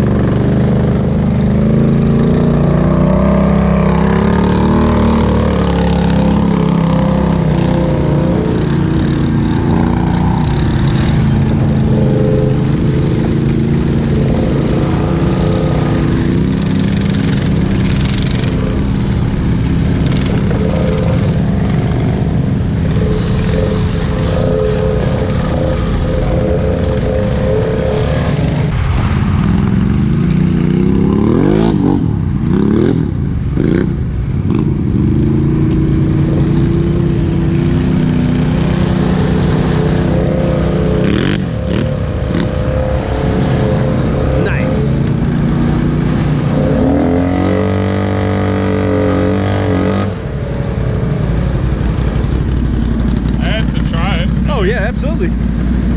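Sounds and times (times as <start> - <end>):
atv engine revving: 0.0 - 55.9.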